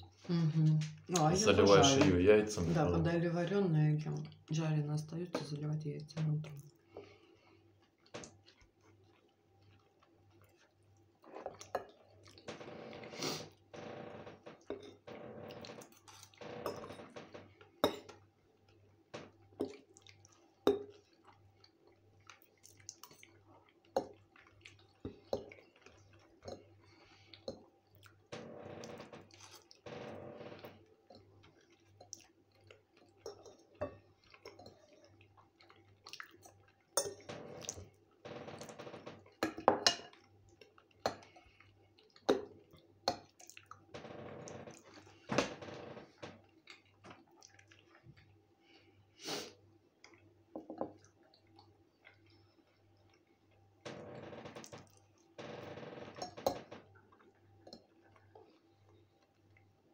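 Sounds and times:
close-up chewing: 0:06.6 - 0:12.5, 0:18.5 - 0:28.3, 0:30.8 - 0:38.1, 0:46.4 - 0:48.9, 0:51.0 - 0:53.6.

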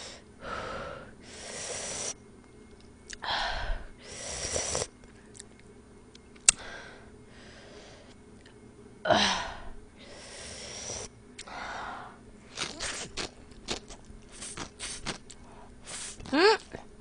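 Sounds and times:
woman breathing hard: 0:00.0 - 0:02.1, 0:03.2 - 0:04.5, 0:06.6 - 0:08.2, 0:09.1 - 0:12.2.

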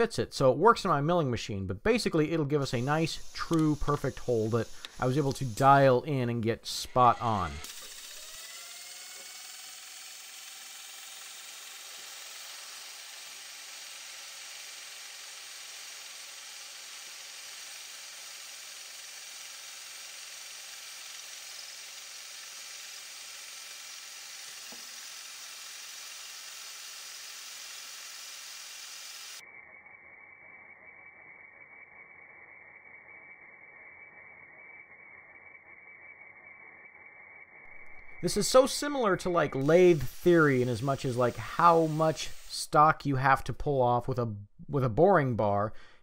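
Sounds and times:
spindle whine: 0:02.0 - 0:09.6, 0:29.4 - 0:42.6
milling machine spindle hiss: 0:02.6 - 0:29.4, 0:38.2 - 0:42.7.

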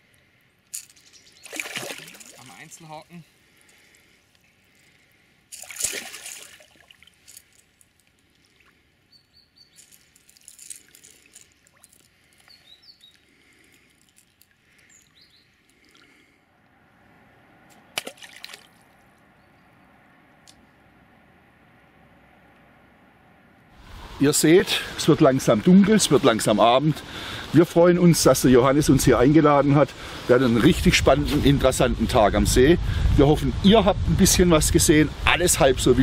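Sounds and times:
water sloshing: 0:00.7 - 0:09.1, 0:09.8 - 0:16.3, 0:17.7 - 0:19.2
fish splashing in water: 0:00.8 - 0:02.9, 0:05.5 - 0:09.0, 0:09.8 - 0:12.5, 0:17.7 - 0:19.0
faint bird chirps: 0:08.6 - 0:10.0, 0:12.4 - 0:13.3, 0:14.7 - 0:16.0, 0:19.3 - 0:20.0.

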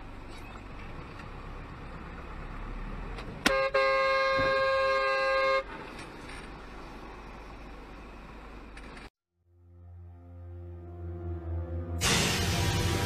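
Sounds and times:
road and engine rumble: 0:00.0 - 0:09.2
car horn: 0:03.4 - 0:05.8.

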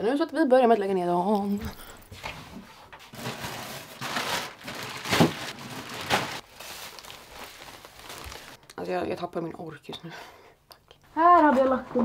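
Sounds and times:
clothes rustling: 0:01.5 - 0:08.6.

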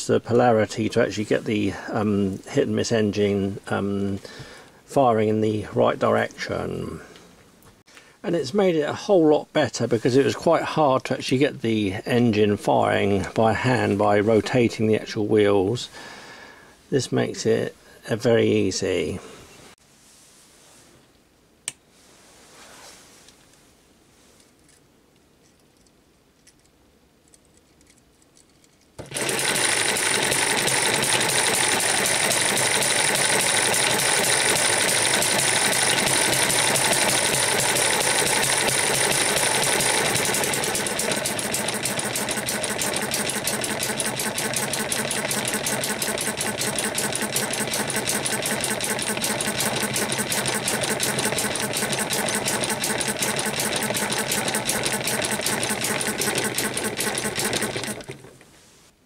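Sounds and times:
model engine clattering: 0:29.0 - 0:58.4.

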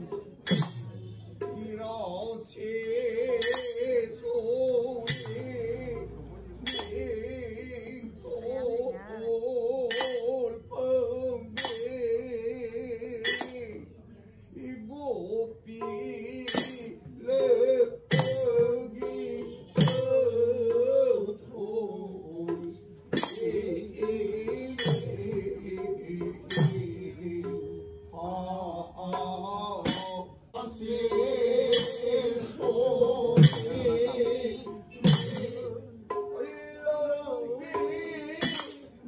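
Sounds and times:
metallic cymbal clash: 0:00.4 - 0:01.2, 0:06.6 - 0:07.1
devotional singing: 0:14.6 - 0:38.8.

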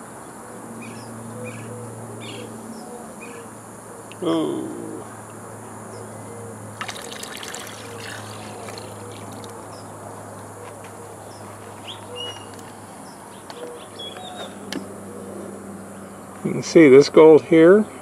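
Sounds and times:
water splashing and trickling: 0:06.7 - 0:10.0.

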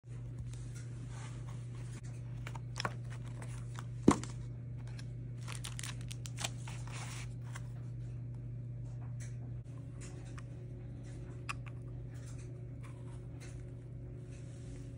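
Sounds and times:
steady low hum: 0:00.1 - 0:14.9
plastic bag crinkling: 0:05.4 - 0:07.2.

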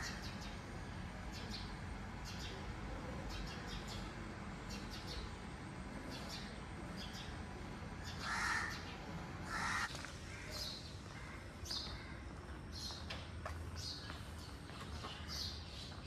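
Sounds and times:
small birds chirping: 0:00.0 - 0:16.0
crow cawing: 0:08.2 - 0:08.8, 0:09.4 - 0:12.3.

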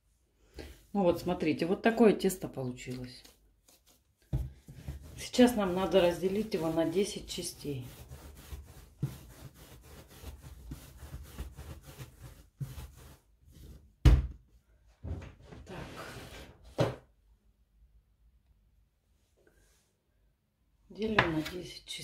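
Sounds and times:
hands rubbing dough: 0:02.7 - 0:13.9.

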